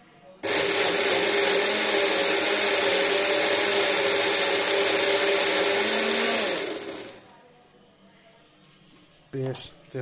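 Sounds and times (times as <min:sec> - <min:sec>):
blender motor grinding: 0:00.4 - 0:07.2.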